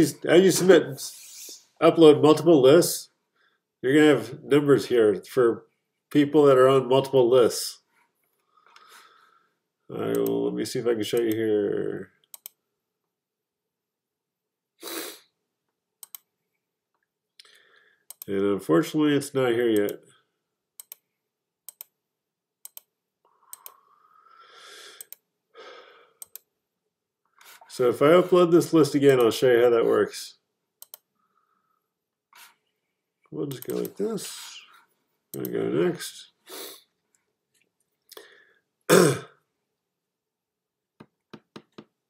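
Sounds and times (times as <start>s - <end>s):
computer mouse clicks: 12.2s - 12.6s, 16.0s - 16.3s, 18.1s - 18.3s, 20.8s - 21.0s, 21.7s - 21.9s, 22.6s - 22.9s, 23.5s - 23.8s, 25.0s - 25.2s, 26.2s - 26.5s, 30.8s - 31.1s, 33.5s - 34.0s
man clearing his throat: 38.9s - 39.4s.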